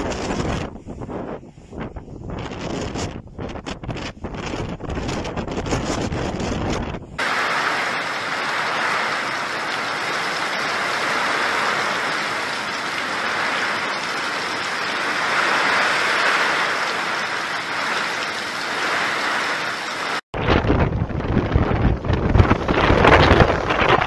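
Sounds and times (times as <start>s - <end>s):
heavy rain pouring: 7.2s - 24.0s.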